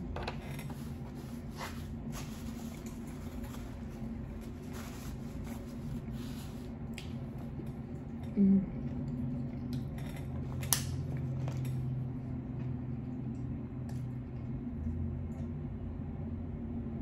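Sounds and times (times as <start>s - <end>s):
steady low hum: 0.0s - 17.0s
chewing food: 6.8s - 15.5s.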